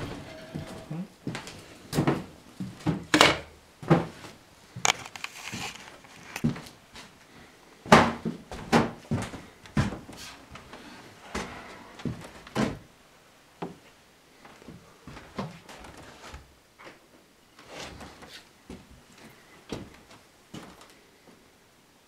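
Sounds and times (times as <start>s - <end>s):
footsteps on wooden floor: 0.0s - 3.1s, 7.8s - 12.8s.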